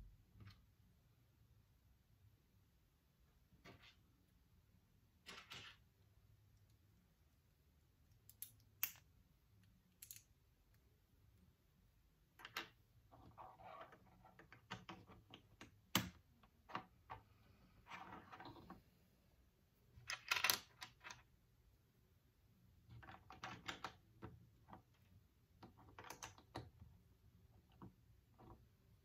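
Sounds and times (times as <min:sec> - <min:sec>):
plastic bricks clicking and clattering: 0:09.9 - 0:10.3, 0:20.0 - 0:21.3, 0:22.9 - 0:25.0, 0:25.6 - 0:26.8.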